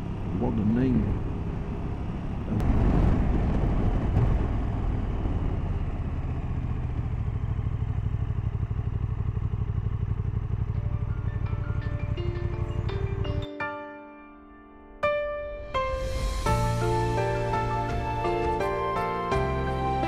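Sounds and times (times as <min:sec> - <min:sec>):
motorcycle engine running: 0:00.0 - 0:13.5
wind and road noise: 0:00.0 - 0:13.5, 0:15.4 - 0:19.7.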